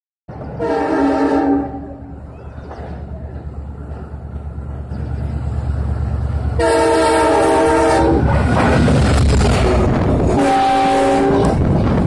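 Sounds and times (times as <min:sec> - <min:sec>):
train locomotive rumble: 0:00.3 - 0:12.0
train horn blast: 0:00.6 - 0:02.1, 0:06.6 - 0:08.7, 0:09.5 - 0:11.7.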